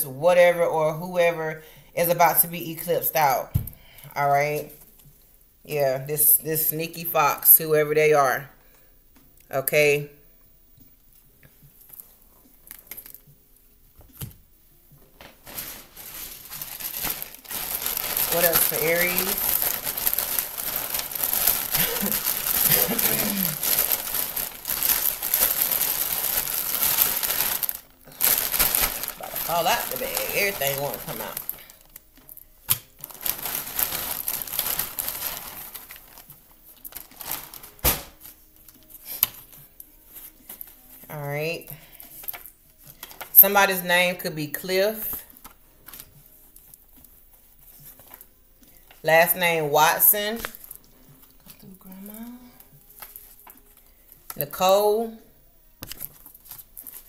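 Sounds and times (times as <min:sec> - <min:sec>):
bag crinkling: 0:15.1 - 0:39.3, 0:42.0 - 0:43.7, 0:55.8 - 0:57.0.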